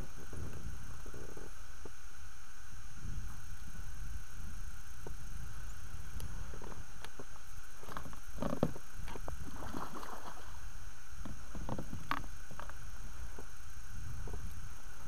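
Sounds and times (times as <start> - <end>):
fish splashing and thrashing: 7.8 - 10.6.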